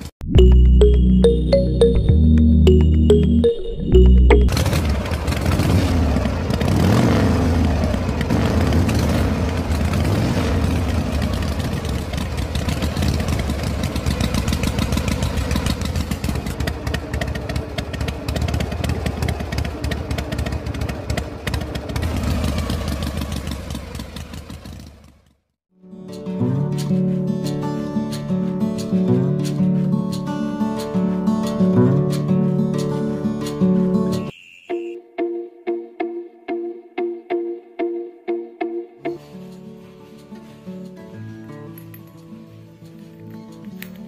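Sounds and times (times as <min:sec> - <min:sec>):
engine chugging: 0:04.0 - 0:25.5.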